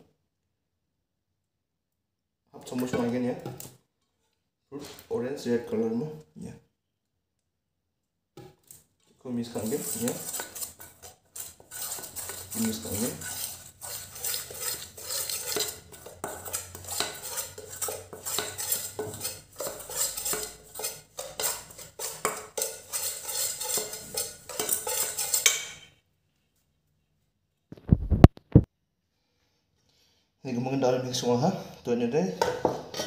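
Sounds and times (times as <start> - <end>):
metal spoon scraping a steel bowl: 9.4 - 25.9, 32.4 - 33.0.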